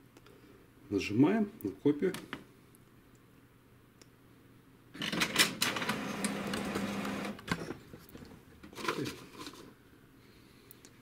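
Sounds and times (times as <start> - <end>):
printer mechanism whirring: 5.0 - 7.6.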